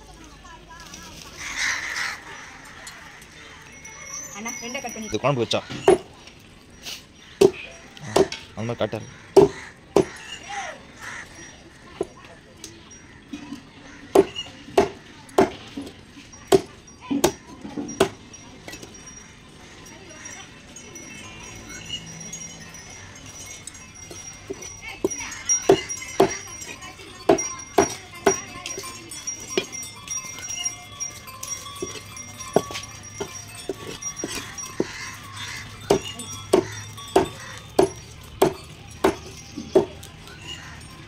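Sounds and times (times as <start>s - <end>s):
knife chopping fish on wood: 9.4s - 10.1s.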